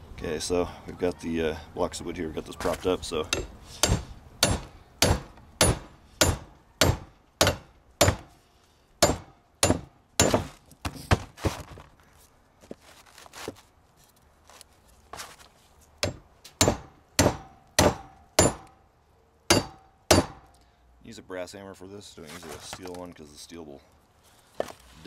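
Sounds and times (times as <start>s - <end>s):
hammer striking metal: 3.3s - 8.3s, 9.0s - 10.5s, 16.0s - 18.8s, 19.5s - 20.5s.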